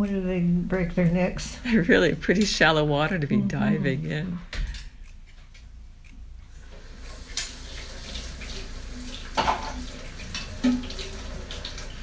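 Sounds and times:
water running from a tap: 0:06.5 - 0:12.0
dishes clinking: 0:09.2 - 0:11.2.

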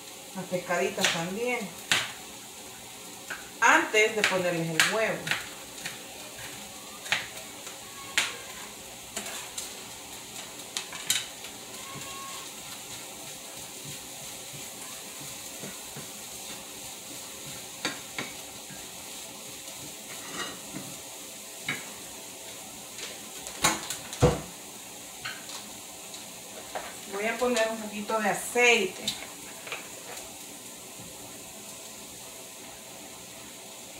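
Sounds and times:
fish frying in a skillet: 0:00.0 - 0:33.9
spatula knocking in pan: 0:11.0 - 0:16.6, 0:17.4 - 0:18.9.

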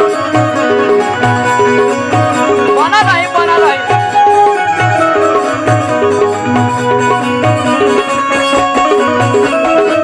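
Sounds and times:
banjo melody: 0:00.0 - 0:10.0
harmonium: 0:00.0 - 0:10.0
tabla beat: 0:00.0 - 0:10.0.

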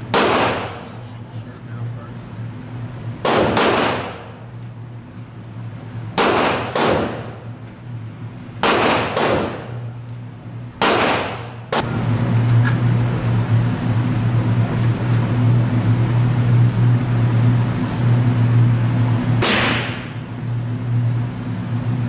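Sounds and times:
gunshots echoing indoors: 0:00.0 - 0:01.1, 0:03.2 - 0:04.4, 0:06.2 - 0:07.4, 0:08.6 - 0:10.0, 0:10.8 - 0:11.9, 0:19.4 - 0:20.2
steady low hum: 0:00.0 - 0:22.0.

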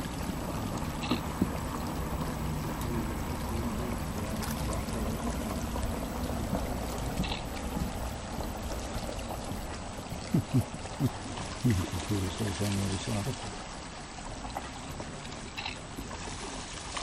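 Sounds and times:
creek running over gravel: 0:00.0 - 0:17.0.

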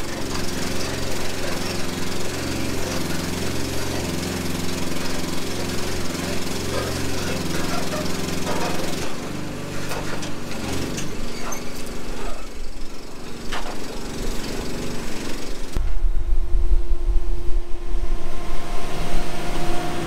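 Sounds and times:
sharp metal knocks and clanks: 0:00.0 - 0:12.4
excavator diesel engine running: 0:00.0 - 0:15.8, 0:18.1 - 0:20.0.

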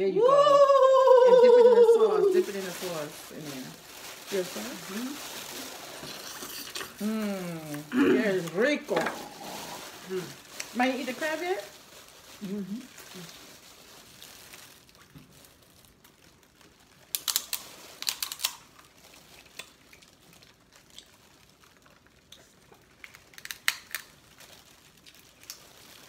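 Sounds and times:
shells cracking by hand: 0:17.1 - 0:18.7, 0:23.1 - 0:24.2.

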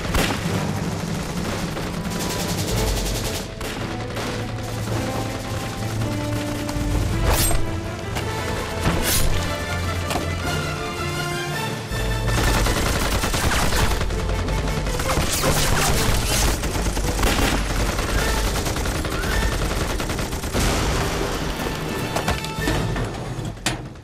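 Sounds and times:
rapid gunfire: 0:00.0 - 0:07.3, 0:12.1 - 0:21.9
machine-gun bursts: 0:12.3 - 0:20.6.

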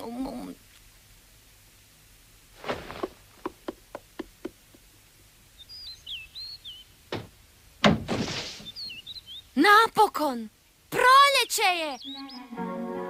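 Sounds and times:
bird chirps: 0:05.6 - 0:07.0, 0:08.6 - 0:09.6, 0:11.3 - 0:12.6.

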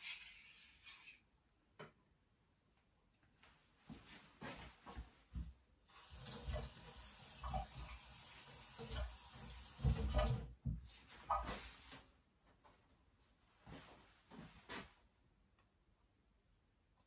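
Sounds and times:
kitchen tap running: 0:06.0 - 0:10.6
knocks and clunks at sink: 0:08.8 - 0:11.4.

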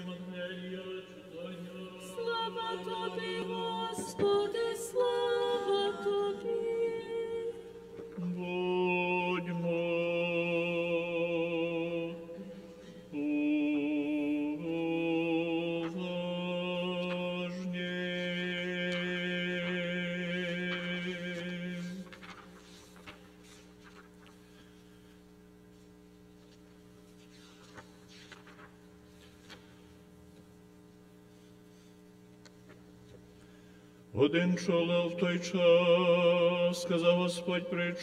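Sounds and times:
man chanting: 0:00.0 - 0:03.6, 0:34.2 - 0:38.0
quiet room hum: 0:00.0 - 0:38.0.

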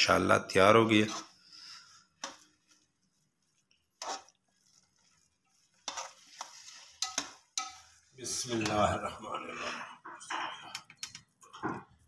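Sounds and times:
spoon scraping a metal pot: 0:00.8 - 0:09.0.

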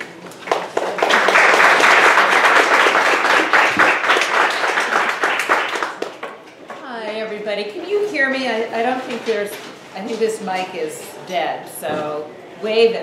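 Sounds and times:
audience applauding: 0:00.4 - 0:06.4.

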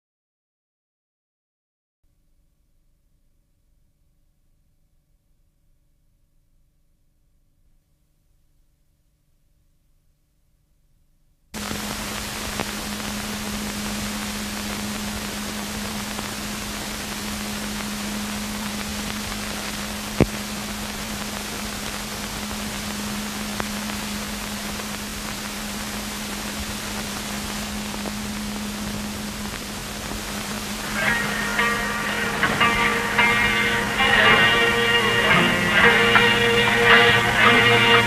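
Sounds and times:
film hiss: 0:11.6 - 0:38.0
low hum: 0:11.6 - 0:38.0.

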